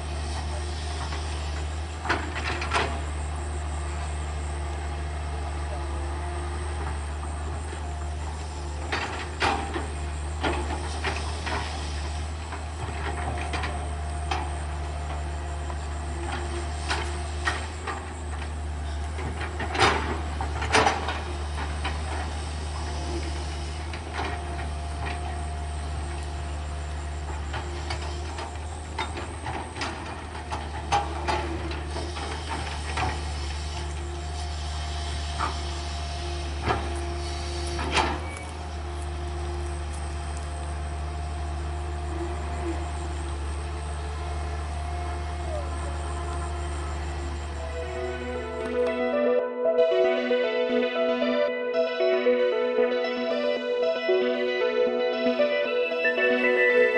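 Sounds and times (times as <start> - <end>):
excavator diesel engine running: 0.0 - 56.9
hydraulic whine: 42.1 - 49.2.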